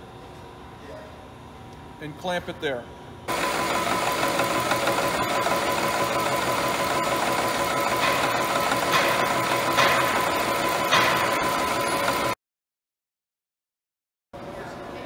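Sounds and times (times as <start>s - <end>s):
milling machine cutting steel: 3.3s - 12.4s
steady machine whine: 3.3s - 12.4s.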